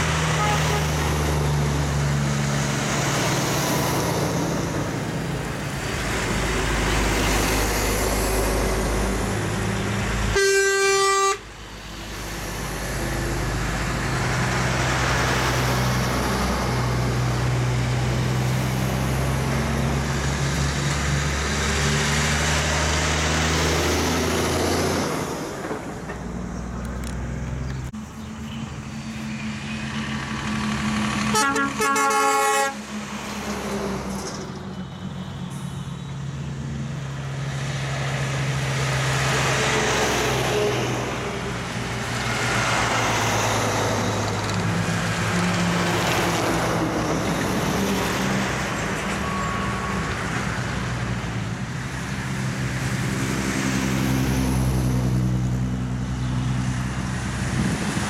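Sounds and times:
diesel trucks driving past: 0:00.0 - 0:58.0
truck horn: 0:00.3 - 0:01.3, 0:10.3 - 0:11.5, 0:31.2 - 0:32.9.

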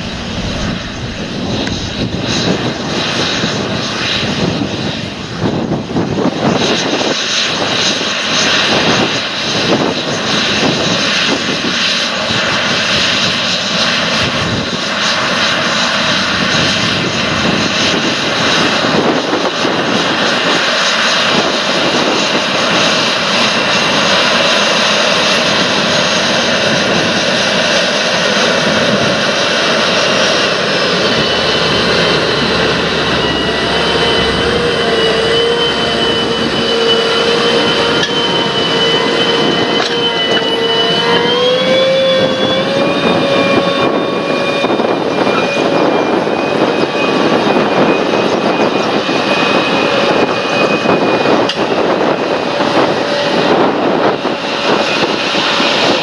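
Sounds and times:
heavy diesel tractor engine: 0:00.0 - 0:03.2, 0:28.2 - 0:46.4.

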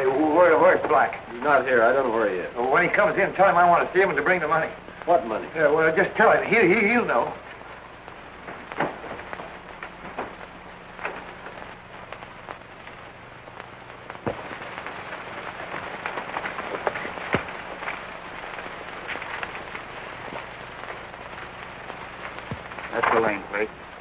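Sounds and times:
film soundtrack hiss: 0:00.0 - 0:24.0
low hum: 0:00.0 - 0:24.0
clicks and pops: 0:07.4 - 0:23.3.

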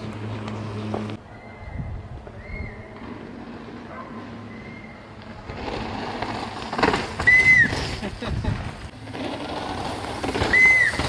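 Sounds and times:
high whistle-like tones: 0:01.3 - 0:03.0, 0:04.4 - 0:05.1, 0:07.2 - 0:07.8, 0:10.4 - 0:11.0
mountain bike rattling on dirt: 0:02.9 - 0:11.0.

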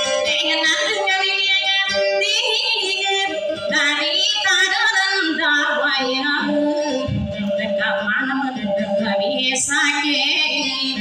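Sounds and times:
woman singing with vibrato: 0:00.0 - 0:11.0.

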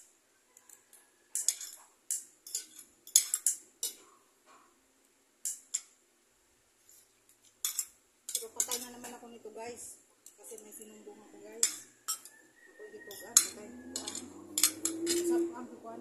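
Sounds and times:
cutlery scraping a plate: 0:00.6 - 0:04.7, 0:07.4 - 0:09.2, 0:11.5 - 0:15.5.

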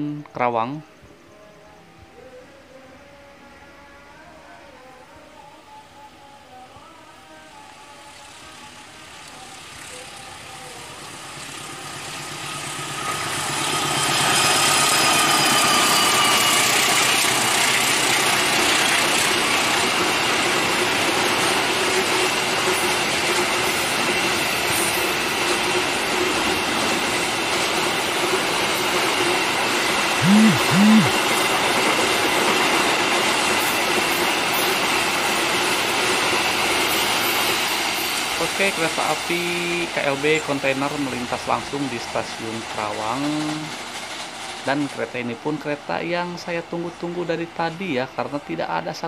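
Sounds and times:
locomotive engine whine: 0:30.2 - 0:31.4.

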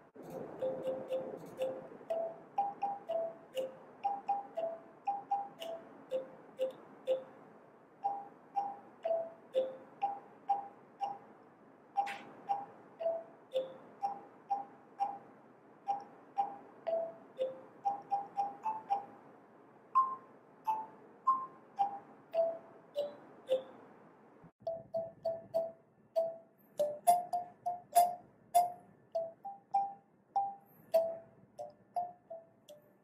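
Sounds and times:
kalimba tines plucked: 0:00.2 - 0:07.3, 0:08.0 - 0:11.2, 0:15.9 - 0:19.1, 0:24.7 - 0:32.5.

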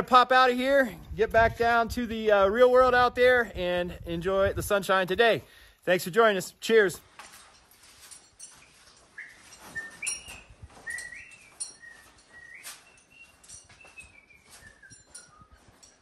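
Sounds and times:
footsteps on sand: 0:07.0 - 0:16.0
whistled notes: 0:08.6 - 0:16.0.

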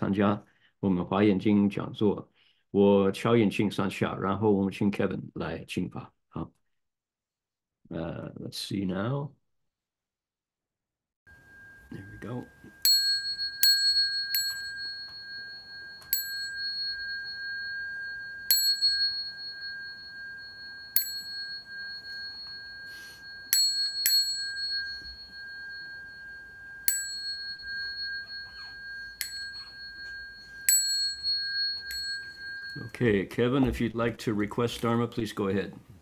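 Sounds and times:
bowl bell struck ringing: 0:11.3 - 0:34.1.

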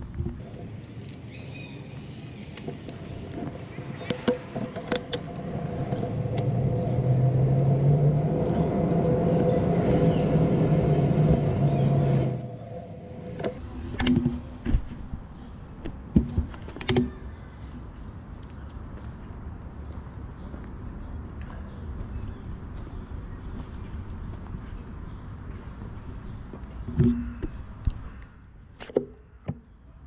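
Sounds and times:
motor humming: 0:04.7 - 0:13.6.

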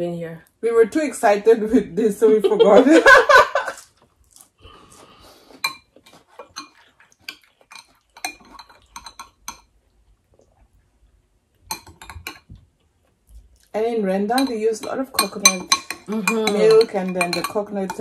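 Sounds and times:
spoons clinking against glass bowls: 0:05.6 - 0:09.7, 0:11.7 - 0:12.5, 0:14.2 - 0:18.0.

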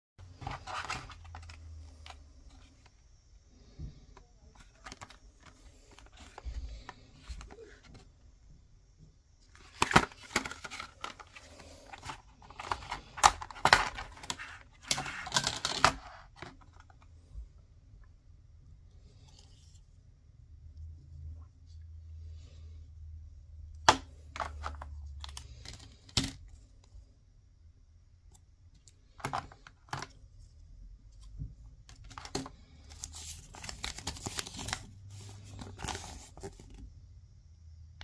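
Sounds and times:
plastic packaging clicking and crinkling: 0:04.2 - 0:08.0, 0:09.6 - 0:17.0, 0:31.9 - 0:36.7.

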